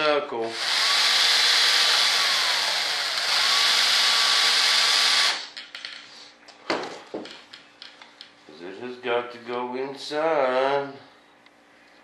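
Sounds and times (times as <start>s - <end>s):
cordless drill running: 0.5s - 5.5s.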